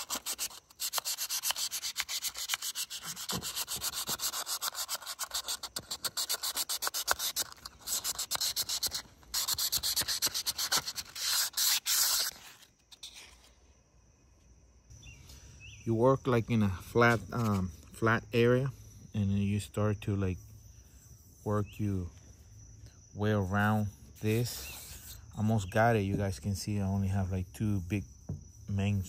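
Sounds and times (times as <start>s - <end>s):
sandpaper scratching in metal bore: 0.0s - 13.3s.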